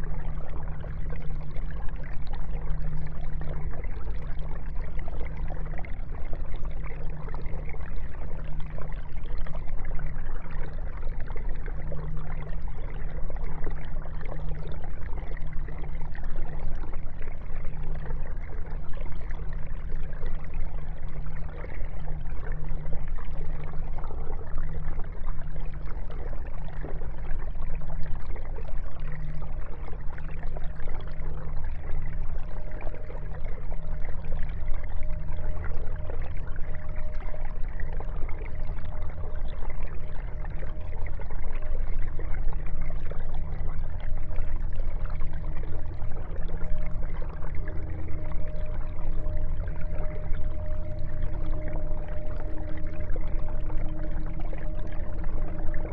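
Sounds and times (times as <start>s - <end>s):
filter low hum: 0.0s - 55.9s
water trickling into tank: 0.0s - 55.9s.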